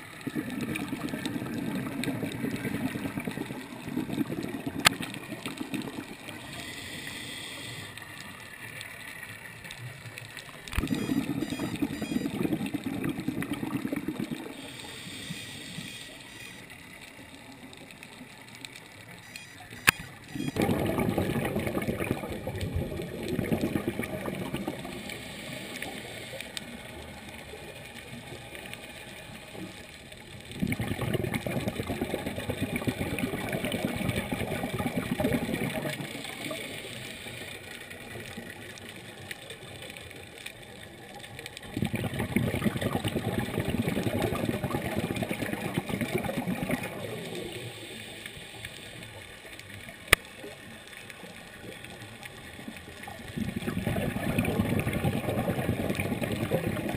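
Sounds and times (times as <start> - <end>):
exhaled bubbles rushing: 0.0 - 6.5, 10.6 - 14.7, 20.3 - 37.0, 40.9 - 47.7, 51.6 - 56.9.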